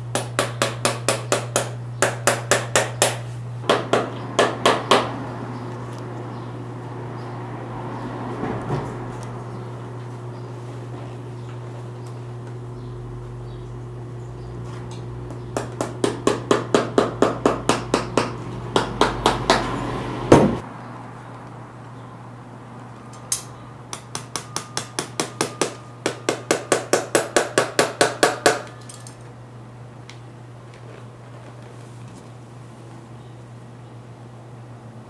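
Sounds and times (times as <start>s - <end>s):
hammer tapping tacks: 0.1s - 5.1s
loud knock: 20.3s - 20.6s.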